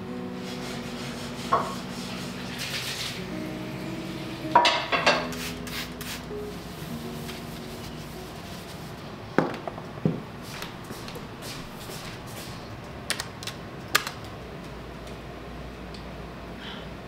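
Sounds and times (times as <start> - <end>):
soft background music: 0.0 - 9.4.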